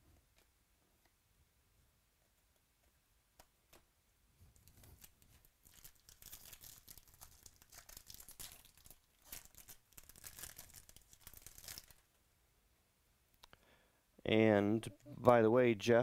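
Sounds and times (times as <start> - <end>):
wrapper tearing and crinkling: 4.6 - 12.0.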